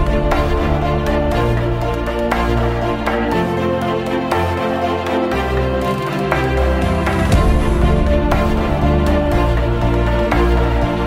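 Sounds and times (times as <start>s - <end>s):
instrumental music with regular pulse: 0.0s - 11.0s.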